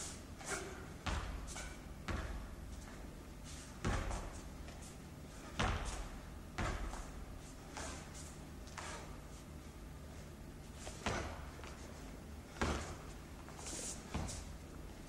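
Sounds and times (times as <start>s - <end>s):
steady low hum: 0.0s - 15.0s
feet stamping on hard floor: 1.0s - 3.1s, 3.8s - 9.0s, 10.8s - 11.9s, 12.5s - 14.5s.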